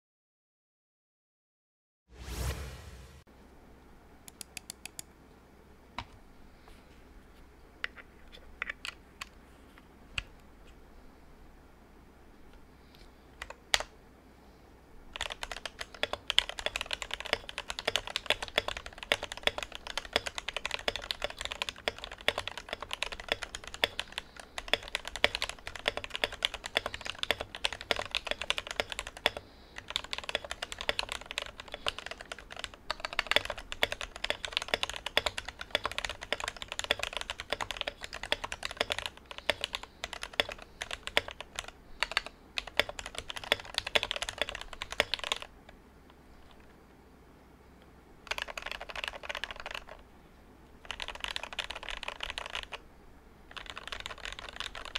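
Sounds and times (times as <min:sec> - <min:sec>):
fast typing on mechanical keyboard: 0:15.1 - 0:45.5, 0:48.2 - 0:50.0, 0:50.8 - 0:52.8, 0:53.5 - 0:54.9.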